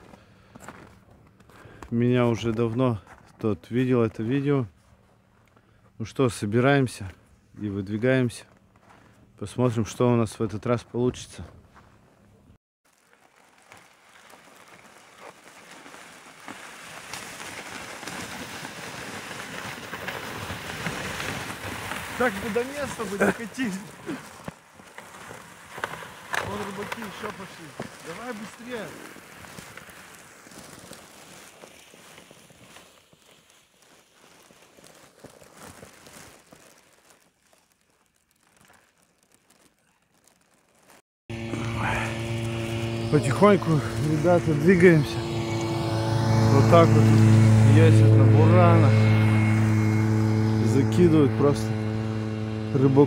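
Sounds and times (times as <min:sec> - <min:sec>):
boots crunching in snow: 0:12.9 - 0:44.4
sled scraping over snow: 0:13.0 - 0:38.0, 0:38.6 - 0:53.0.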